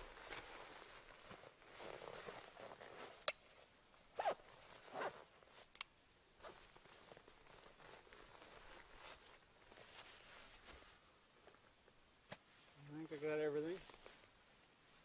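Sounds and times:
straps rustling: 0:00.0 - 0:03.3, 0:04.1 - 0:05.7, 0:06.4 - 0:11.6.

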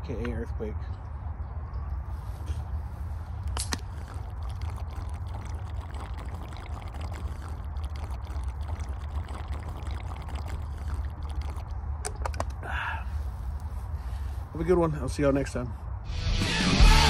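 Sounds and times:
beer pouring and gulping: 0:03.6 - 0:11.8.

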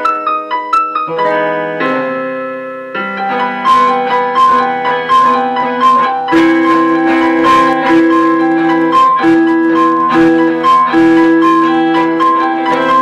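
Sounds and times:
small band instrumental piece: 0:03.0 - 0:13.0.

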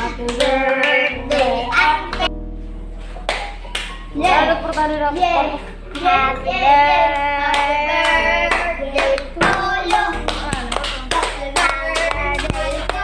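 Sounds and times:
person singing: 0:00.0 - 0:02.3, 0:04.1 - 0:13.0
bass line: 0:00.0 - 0:13.0
hand claps: 0:03.2 - 0:05.3, 0:07.2 - 0:13.0.

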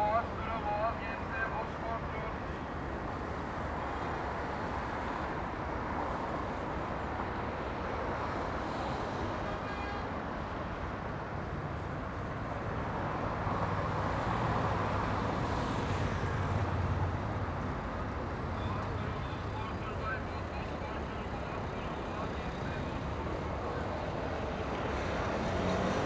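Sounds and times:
passing cars: 0:10.2 - 0:26.0.

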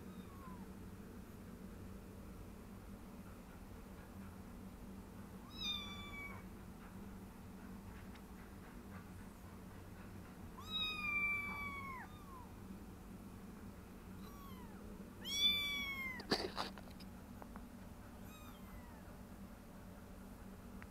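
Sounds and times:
kittens mewing: 0:00.0 - 0:00.6, 0:05.4 - 0:06.5, 0:10.6 - 0:12.6, 0:14.2 - 0:17.0, 0:18.2 - 0:19.1.

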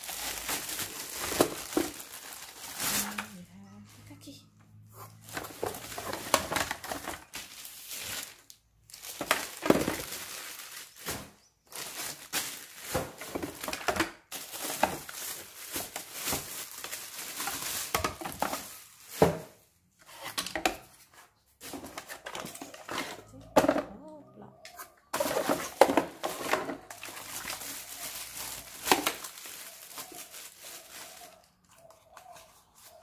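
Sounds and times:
cardboard rustling: 0:00.0 - 0:03.2, 0:25.2 - 0:33.0
plastic bags crinkling: 0:00.0 - 0:03.5, 0:05.2 - 0:19.7, 0:25.2 - 0:33.0.

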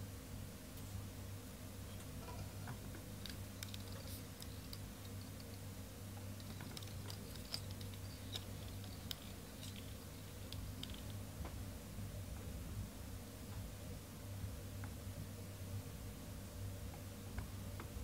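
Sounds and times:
low steady hum: 0:00.0 - 0:18.0
clicks of small metal parts: 0:03.2 - 0:05.6, 0:06.3 - 0:11.2.

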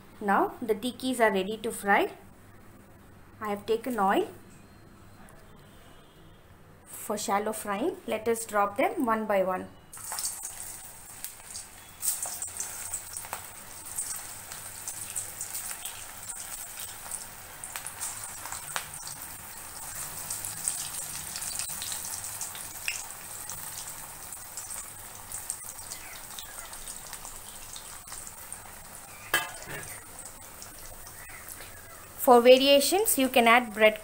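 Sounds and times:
patties sizzling in hot oil: 0:10.0 - 0:34.0.

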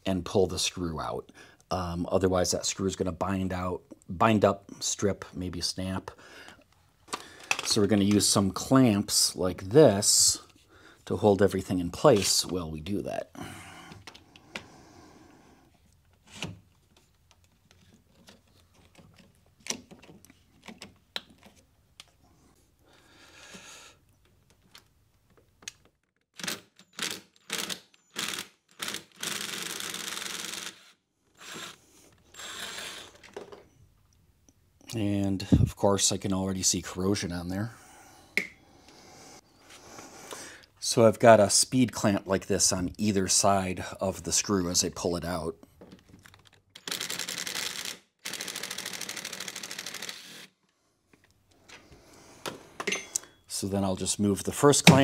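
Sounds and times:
power drill backing out screw: 0:26.4 - 0:33.6.

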